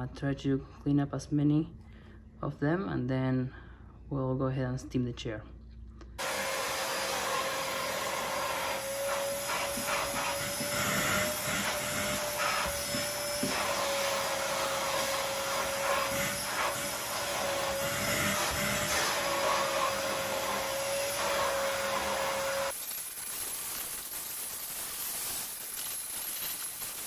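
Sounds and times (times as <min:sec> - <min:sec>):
vacuum cleaner motor whine: 0:06.2 - 0:27.0
nozzle rasping on upholstery: 0:08.2 - 0:21.6.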